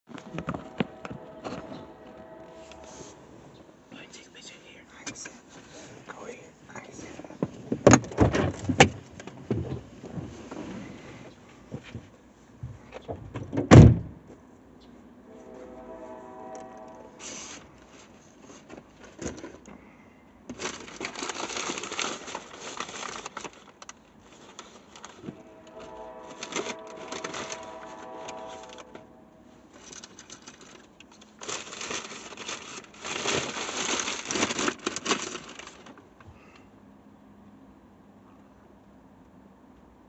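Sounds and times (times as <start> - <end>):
crackling and rustling: 0.1 - 13.4, 16.5 - 19.8, 20.5 - 36.6.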